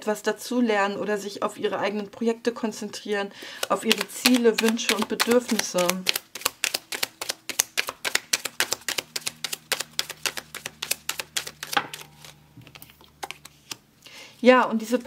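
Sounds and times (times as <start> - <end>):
cards being shuffled: 3.5 - 13.8.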